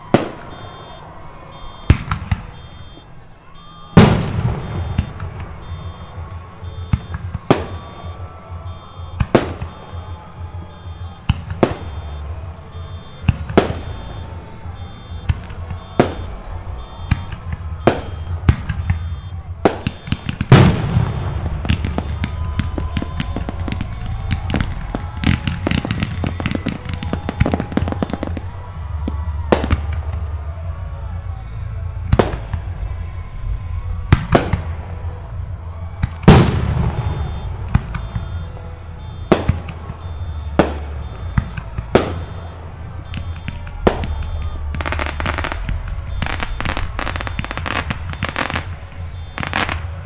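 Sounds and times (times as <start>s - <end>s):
crackling fireworks reports: 0.0s - 50.0s
fireworks bursting: 0.0s - 50.0s.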